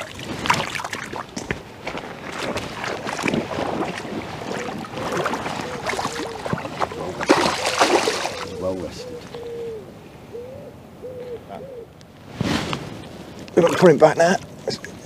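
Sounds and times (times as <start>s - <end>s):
river water splashing: 0.0s - 9.5s
bird cooing: 4.5s - 12.0s.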